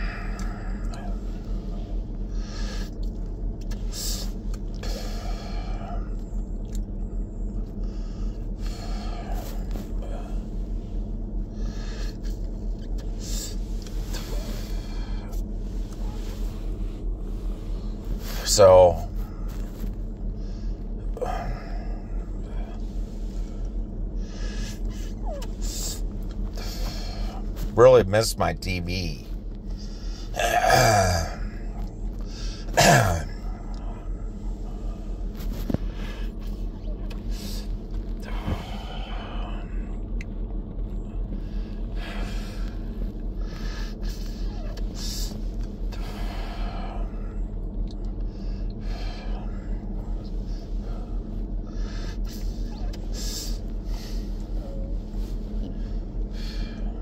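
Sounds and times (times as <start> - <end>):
man breathing smoking cigarette: 0.0 - 6.3, 7.3 - 18.4, 19.2 - 27.7, 29.6 - 30.4, 48.2 - 57.0
low hum in car cabin: 0.0 - 57.0.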